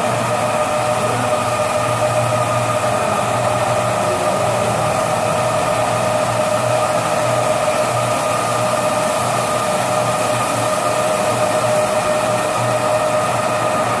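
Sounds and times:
carpet washing machine running: 0.0s - 14.0s.

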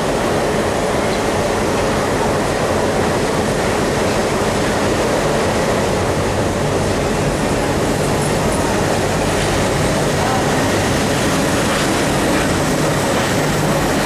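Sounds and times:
locomotive engine rumbling: 0.0s - 14.0s.

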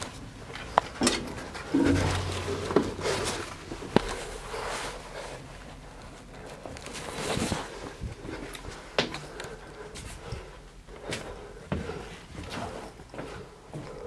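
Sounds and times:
footsteps: 1.7s - 4.8s
sharp knocks: 1.8s - 3.6s.

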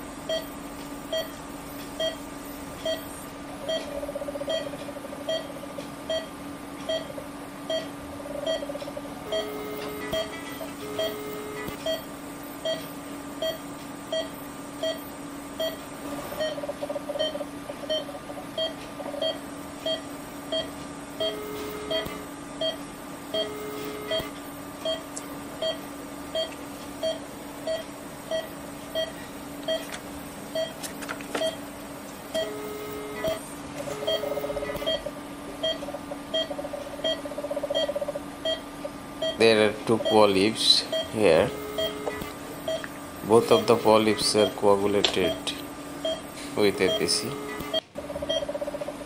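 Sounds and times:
steady hum: 0.0s - 49.0s
patient monitor beeping: 0.2s - 31.7s, 32.3s - 48.6s
low held activation tone: 5.3s - 16.6s, 17.2s - 29.9s, 32.3s - 36.5s, 37.8s - 48.5s.

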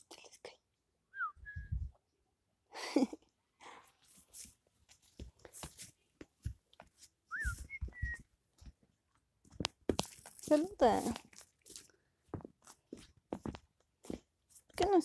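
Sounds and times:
whistled call: 7.3s - 8.2s.

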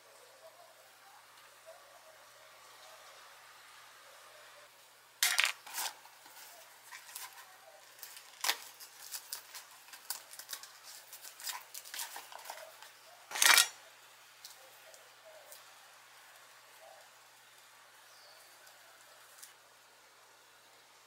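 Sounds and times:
packet rustling and tearing: 5.2s - 13.7s.

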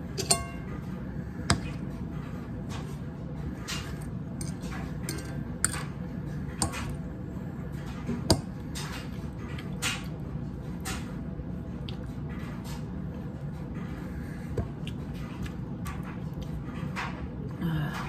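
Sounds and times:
fork clinking on ceramic plate: 0.2s - 0.7s, 4.4s - 5.9s
soft chewing: 11.8s - 12.2s, 13.8s - 18.0s.

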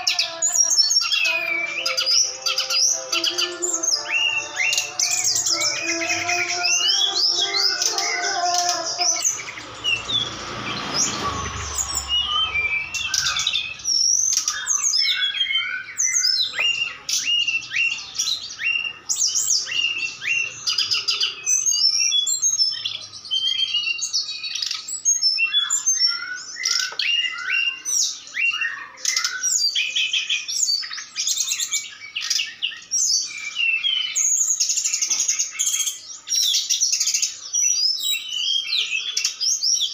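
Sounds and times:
birds chirping and trilling: 0.0s - 39.9s
low held tonal call: 1.0s - 14.6s
short rushing noise: 9.3s - 14.0s.

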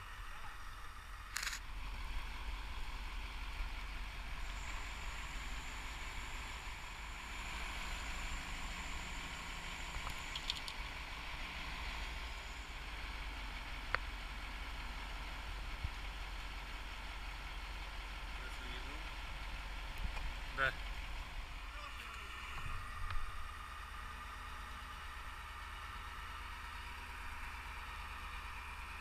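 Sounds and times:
crane engine running: 0.0s - 29.0s.

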